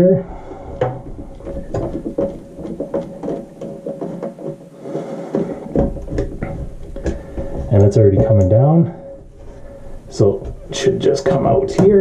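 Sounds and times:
small clicks knocks and rattles: 0:00.7 - 0:04.7, 0:05.3 - 0:08.6.

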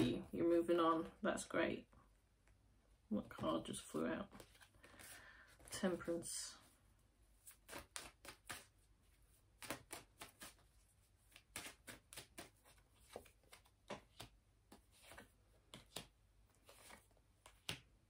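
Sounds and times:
cards being shuffled: 0:04.2 - 0:06.0, 0:07.4 - 0:17.9.

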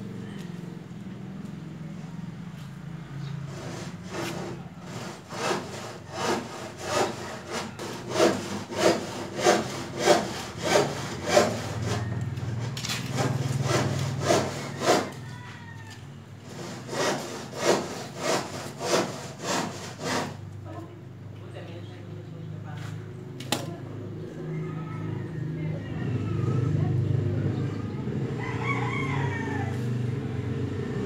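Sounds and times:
hand saw sawing: 0:03.4 - 0:15.2, 0:16.4 - 0:20.5.

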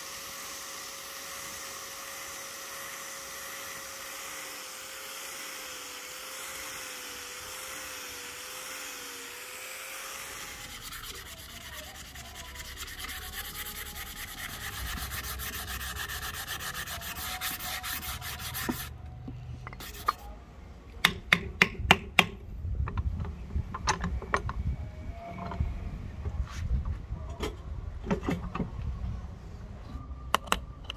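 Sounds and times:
sandpaper rubbing wood: 0:00.0 - 0:18.9, 0:19.8 - 0:20.3.

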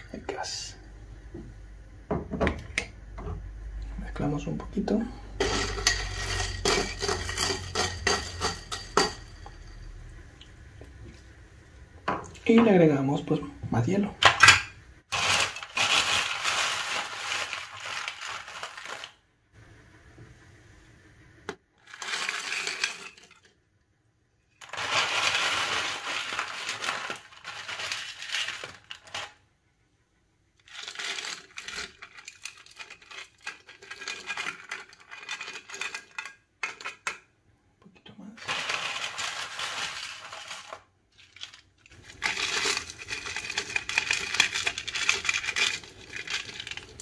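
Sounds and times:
crushed ice clinking into glass: 0:05.4 - 0:10.0, 0:15.1 - 0:19.2, 0:21.8 - 0:23.4, 0:24.6 - 0:29.3, 0:38.4 - 0:47.0.

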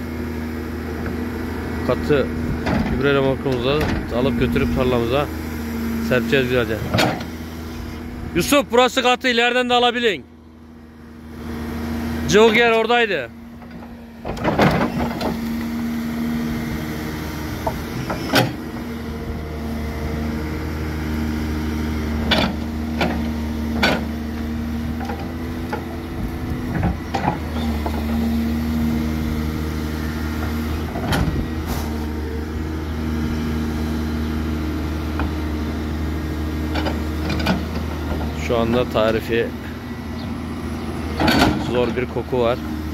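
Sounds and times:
diesel engine running: 0:00.0 - 0:42.9
sharp knocks and clanks: 0:06.8 - 0:07.3, 0:41.2 - 0:41.8.

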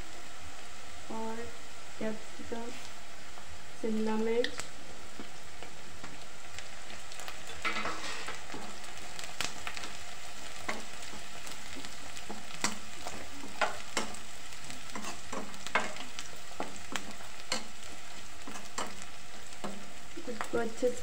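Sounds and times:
vegetables sizzling in oil: 0:00.0 - 0:21.0
metal spatula scraping pan: 0:07.6 - 0:08.4.

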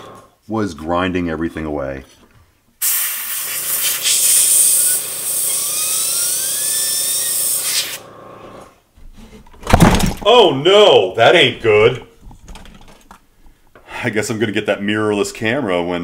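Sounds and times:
airbrush air hiss: 0:02.8 - 0:08.0.

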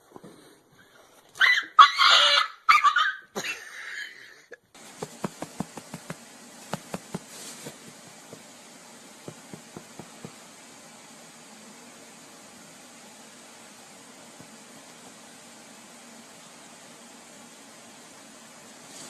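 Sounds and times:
steady hiss: 0:04.7 - 0:19.0.

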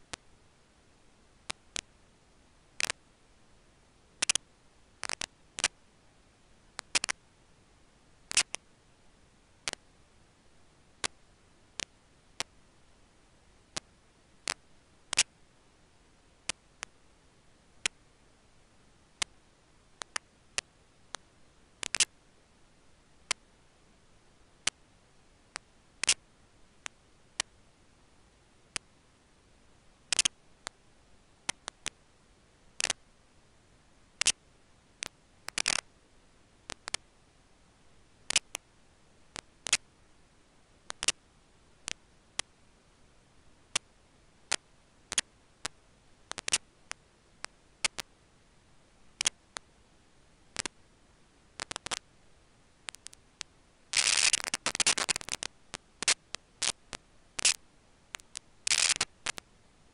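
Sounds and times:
sharp clicks and crackles: 0:04.2 - 0:04.4, 0:05.0 - 0:05.8, 0:06.8 - 0:07.2, 0:08.3 - 0:08.6, 0:20.0 - 0:21.2, 0:21.8 - 0:22.1, 0:25.5 - 0:26.2, 0:30.1 - 0:30.8, 0:31.5 - 0:32.0, 0:32.8 - 0:33.0, 0:35.0 - 0:35.9, 0:36.7 - 0:37.0, 0:38.3 - 0:38.6, 0:39.4 - 0:39.9, 0:40.9 - 0:41.2, 0:44.5 - 0:48.1, 0:49.2 - 0:49.7, 0:50.6 - 0:50.8, 0:51.6 - 0:52.1, 0:52.9 - 0:59.4.

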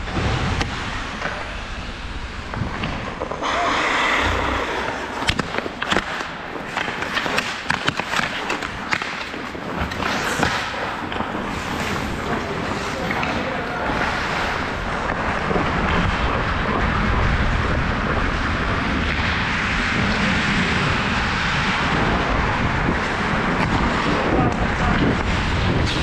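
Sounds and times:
skates scraping on ice: 0:00.1 - 0:26.0
hockey sticks clacking: 0:02.6 - 0:16.2.

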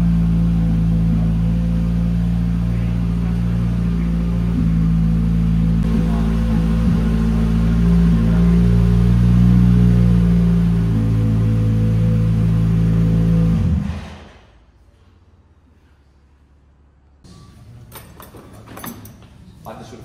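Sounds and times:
car engine idling: 0:00.0 - 0:14.8.

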